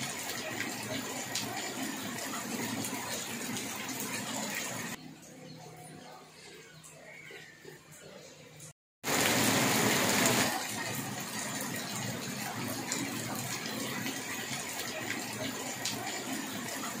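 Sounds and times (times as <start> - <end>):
heavy rain on pavement: 0.0 - 5.0, 9.0 - 17.0.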